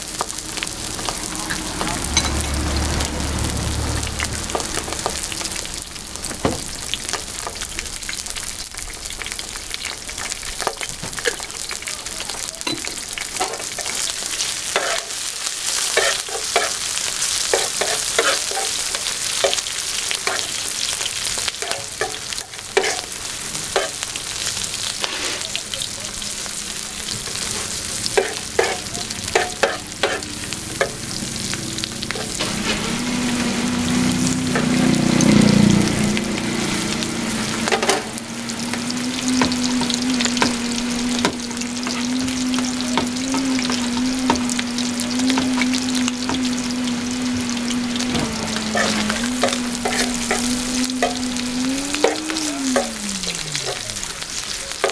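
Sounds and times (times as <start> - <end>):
food sizzling on griddle: 0.0 - 54.9
metal tongs scraping griddle: 14.8 - 15.2, 15.9 - 16.8, 17.5 - 19.6, 21.6 - 22.2, 22.8 - 23.1, 28.1 - 31.0, 32.0 - 33.4, 48.1 - 51.2.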